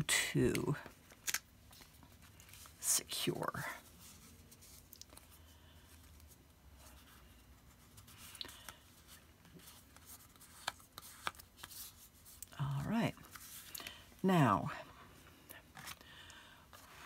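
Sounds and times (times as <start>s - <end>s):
paper card rustling: 3.7s - 13.8s.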